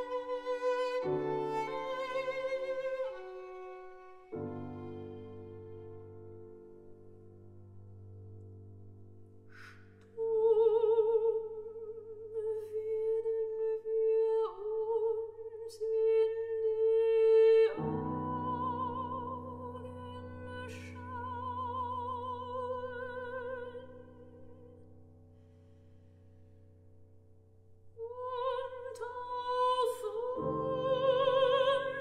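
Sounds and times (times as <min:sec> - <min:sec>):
violin: 0:00.0 - 0:07.0, 0:15.8 - 0:24.7, 0:28.0 - 0:32.0
piano: 0:00.0 - 0:32.0
soprano singing with vibrato: 0:10.1 - 0:24.8, 0:28.0 - 0:32.0.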